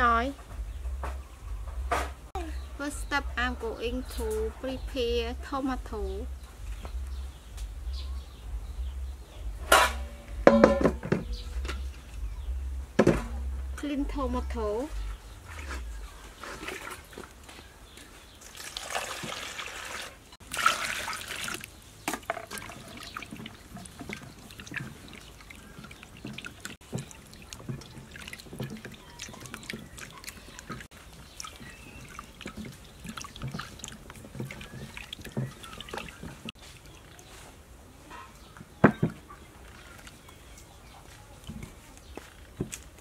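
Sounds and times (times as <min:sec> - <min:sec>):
water sloshing and dripping: 0:09.4 - 0:17.5, 0:18.4 - 0:37.7, 0:38.3 - 0:43.0
tomatoes splashing and knocking: 0:18.4 - 0:37.4.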